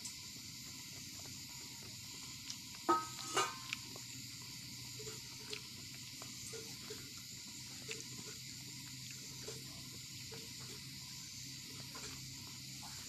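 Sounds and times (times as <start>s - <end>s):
steady hiss: 0.0s - 13.0s
steel plate clinks: 2.9s - 3.6s.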